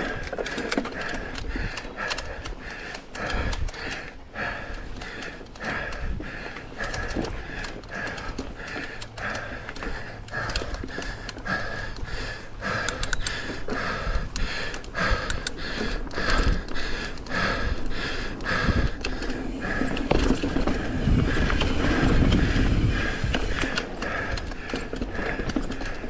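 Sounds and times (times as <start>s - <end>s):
bike clicks and knocks: 0.0s - 26.0s
person breathing hard: 0.0s - 26.0s.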